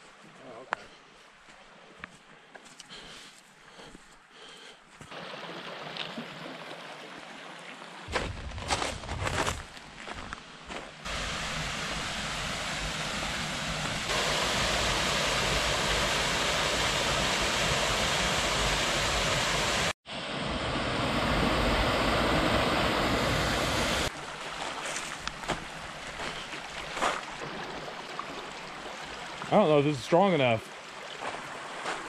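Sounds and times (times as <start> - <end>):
creek running over gravel: 5.0 - 18.4, 24.1 - 32.0
waterfall rushing into a pool: 5.1 - 7.2, 11.1 - 20.0, 20.9 - 24.1.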